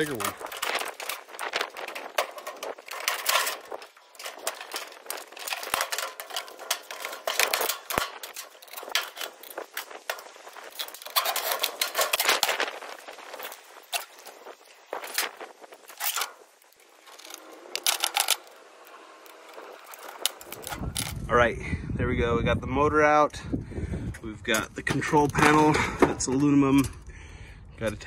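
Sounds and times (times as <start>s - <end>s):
metallic clatter of sheet metal: 0.0s - 14.3s.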